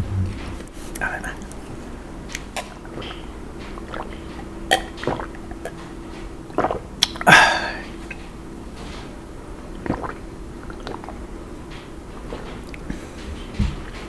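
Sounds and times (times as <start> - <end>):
sipping and swallowing: 2.3 - 5.8, 6.5 - 8.2, 9.7 - 11.2
breathy burst: 7.3 - 7.9.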